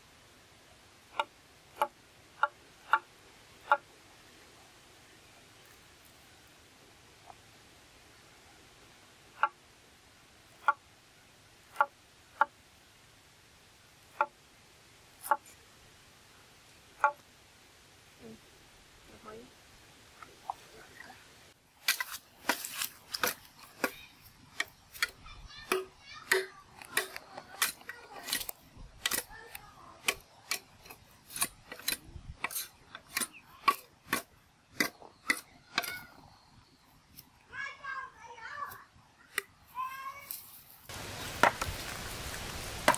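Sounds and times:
cleaver chopping: 11.7 - 12.5, 21.8 - 36.1, 41.4 - 41.7.

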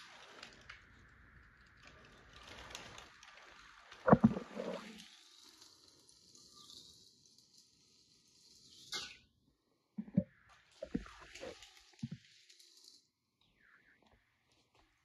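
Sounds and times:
toy train rolling on plastic track: 0.0 - 9.3, 10.6 - 13.2.

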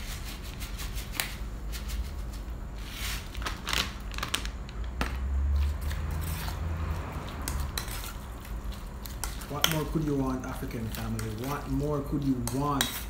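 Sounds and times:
plastic pouch crinkling: 3.2 - 4.9.

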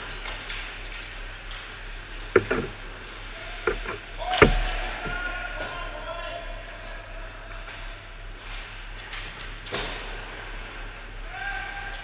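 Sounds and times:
steady rink hum: 0.0 - 12.0
hockey sticks and puck knocking: 2.2 - 2.8, 3.6 - 5.8.

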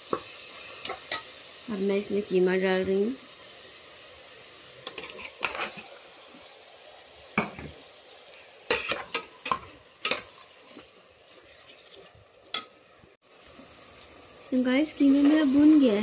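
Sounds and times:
low sizzle: 0.0 - 16.0
metal spoon scraping a pot: 4.8 - 5.9.

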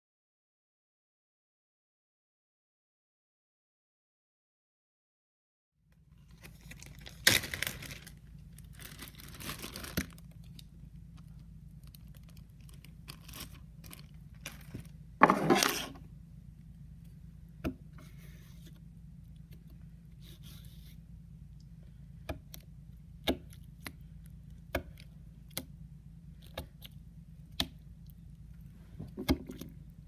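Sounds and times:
steady low hum: 5.8 - 30.0
putty scraping on wooden board: 15.2 - 16.0.

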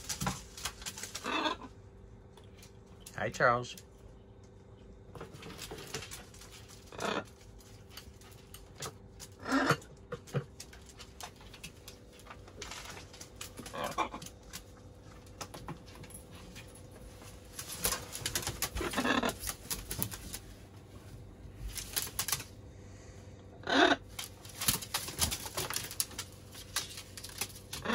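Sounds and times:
beaks and claws tapping: 0.0 - 1.4, 17.4 - 20.5, 21.6 - 22.6, 24.0 - 27.9
wings flapping: 0.0 - 1.7, 5.2 - 9.8, 10.5 - 22.6, 24.0 - 27.9
macaw calls: 18.3 - 19.6, 23.6 - 24.2.

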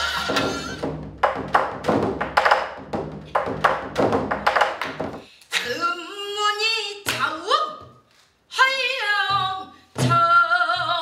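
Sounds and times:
barrel drum beaten with sticks: 0.2 - 5.2.

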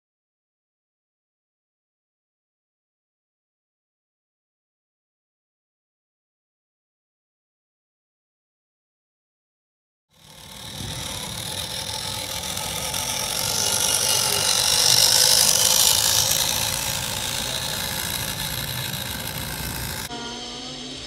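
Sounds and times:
rc truck motor running: 10.1 - 20.1
tires on gravel: 10.2 - 20.1.

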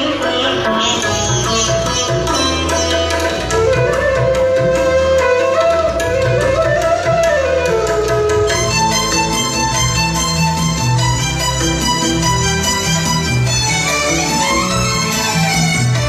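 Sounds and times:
sliding held melody line: 1.0 - 16.0.

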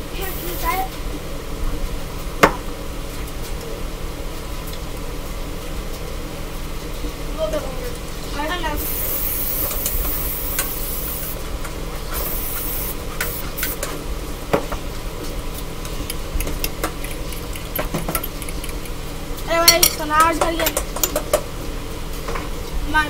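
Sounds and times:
aerosol cooking spray hiss: 0.0 - 1.0, 8.6 - 14.0
sausage sizzling in a pan: 0.0 - 1.2, 8.4 - 17.7
fork whisking eggs in glass bowl: 16.4 - 19.0.

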